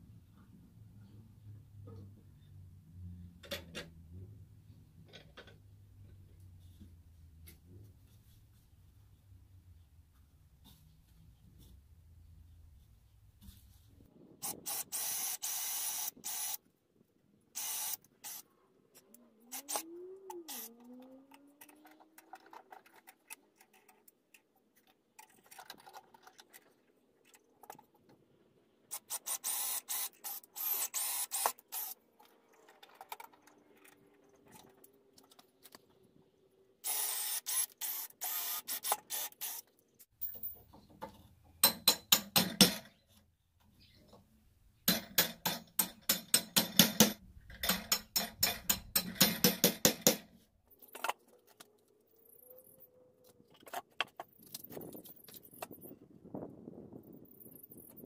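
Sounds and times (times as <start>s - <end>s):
cordless drill driving screws: 14.4s - 16.6s, 17.6s - 18.4s, 28.9s - 32.0s, 36.8s - 39.7s.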